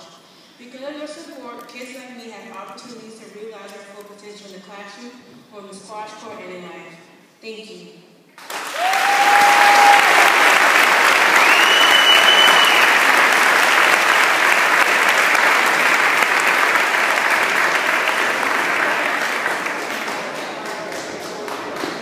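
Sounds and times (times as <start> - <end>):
audience applauding: 8.4 - 22.0.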